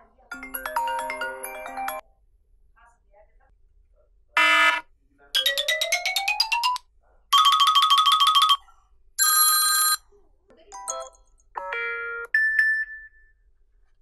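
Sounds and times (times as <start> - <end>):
electronic ringtone tunes: 0.3 - 2.0, 5.4 - 10.0, 10.8 - 13.4.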